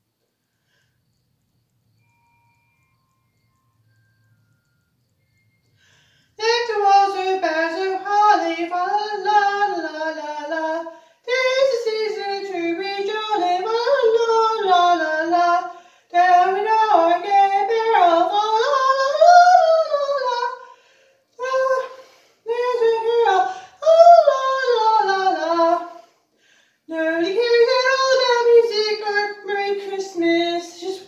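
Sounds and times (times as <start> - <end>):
high voice singing unaccompanied: 6.4 - 20.8, 21.4 - 26.0, 26.9 - 31.0.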